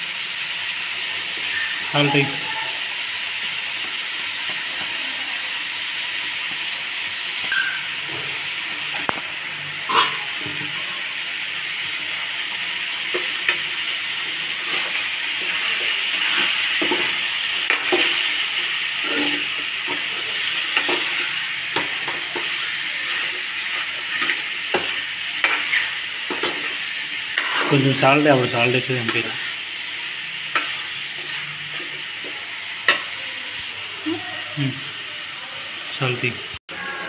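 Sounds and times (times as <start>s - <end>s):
chicken sizzling in a pan: 0.0s - 37.0s
ladle scraping and knocking a pan: 9.9s - 11.0s.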